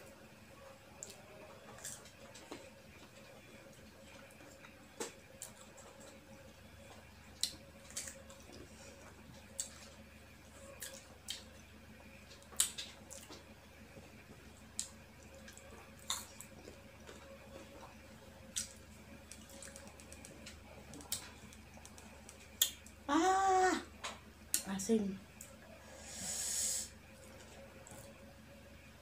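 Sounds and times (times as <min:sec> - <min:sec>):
faint steady hum: 0:00.0 - 0:29.0
crunchy chewing: 0:06.8 - 0:22.8.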